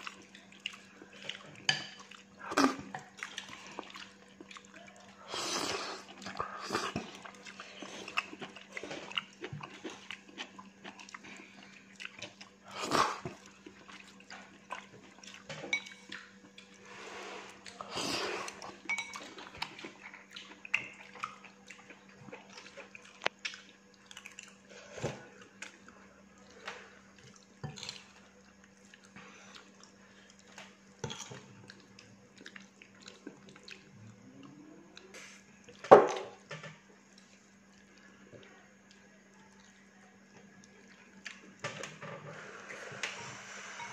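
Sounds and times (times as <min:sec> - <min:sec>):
eating sounds: 0:00.0 - 0:16.8, 0:17.5 - 0:35.8.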